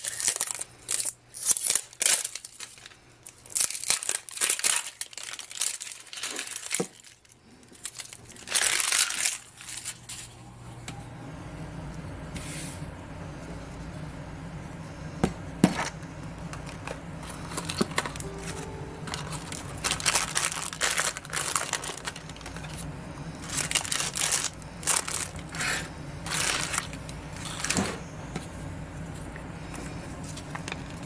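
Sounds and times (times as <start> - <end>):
plastic wrap crinkling and tearing: 0.0 - 10.3, 17.5 - 27.9
low steady hum: 0.0 - 31.0.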